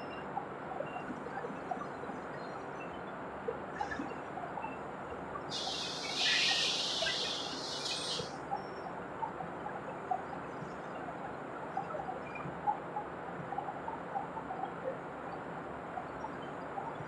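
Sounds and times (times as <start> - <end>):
hiss: 5.5 - 8.3.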